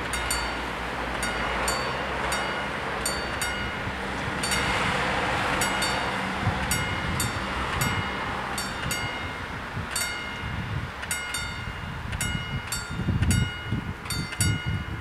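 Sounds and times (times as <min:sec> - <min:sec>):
steady low rumble: 0:00.0 - 0:15.0
level-crossing bells ringing: 0:00.1 - 0:04.8.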